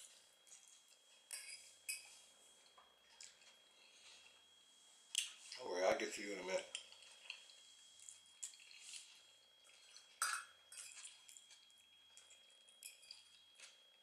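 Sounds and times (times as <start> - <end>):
fork scraping a plate: 1.3 - 2.2
chewing and wet mouth sounds: 2.6 - 4.4, 6.7 - 14.0.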